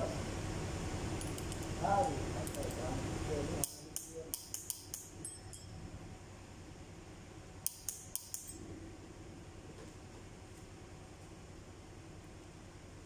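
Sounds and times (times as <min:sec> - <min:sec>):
wrench clicking on metal: 0:02.4 - 0:02.8, 0:03.6 - 0:05.1, 0:07.6 - 0:08.6.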